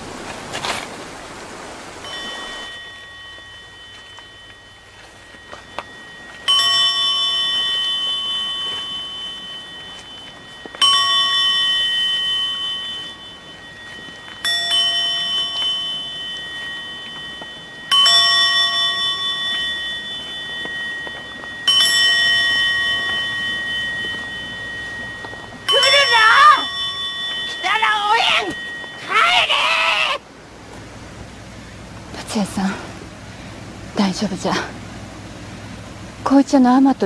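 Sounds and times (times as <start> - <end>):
metal bell tolling: 2.0 - 30.2.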